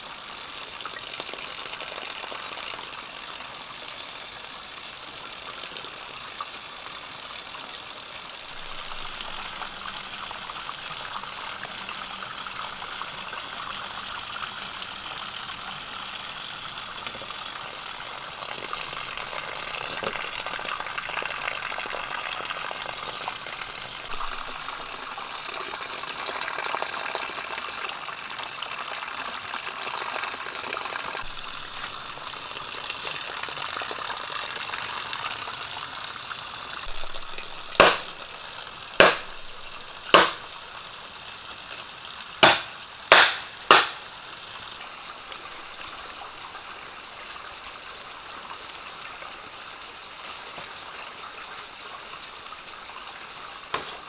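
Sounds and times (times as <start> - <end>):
water splashing into bamboo tubes: 17.1 - 27.5, 30.8 - 34.3, 36.8 - 40.8, 42.4 - 44.2.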